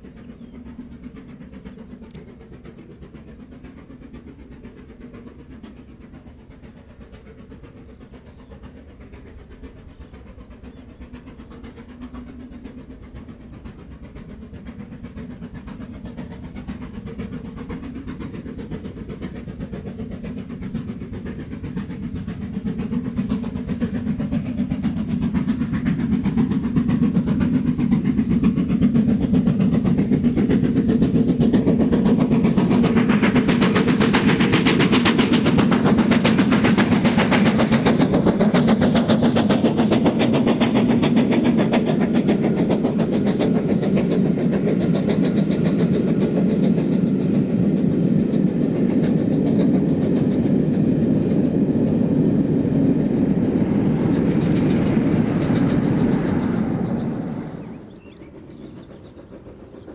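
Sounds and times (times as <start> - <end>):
steam locomotive exhaust beats: 0.0 - 59.9
train wheels clattering on rail joints: 0.0 - 59.9.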